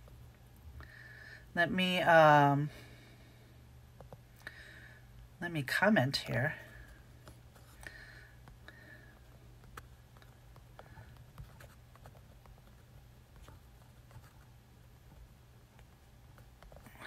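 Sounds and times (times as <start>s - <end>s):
steady low hum: 0.0s - 17.0s
faint clicks and taps: 4.0s - 4.3s, 7.2s - 17.0s.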